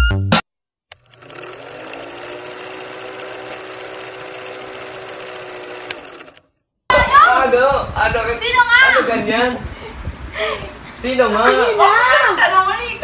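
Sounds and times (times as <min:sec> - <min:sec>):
film projector clatter: 0:00.9 - 0:06.4.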